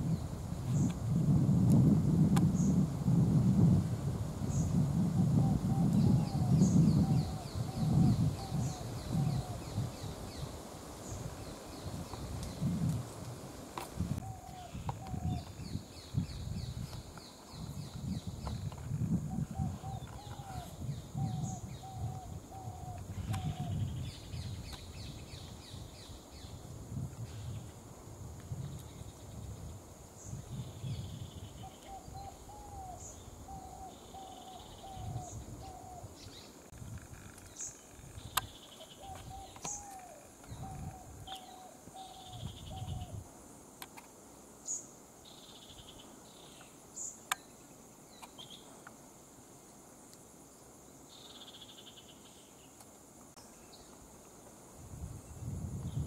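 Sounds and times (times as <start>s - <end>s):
high insect drone: 0.0s - 56.0s.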